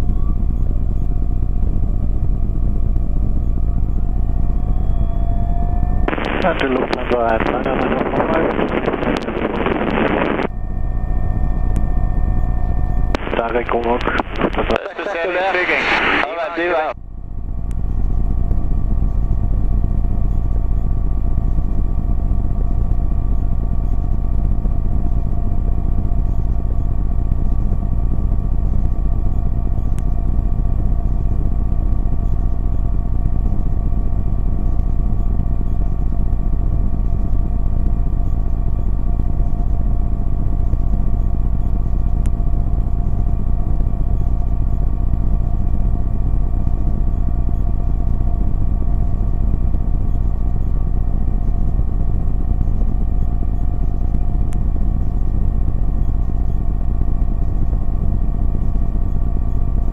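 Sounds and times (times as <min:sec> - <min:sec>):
aircraft engine and propeller drone: 0:00.0 - 0:59.9.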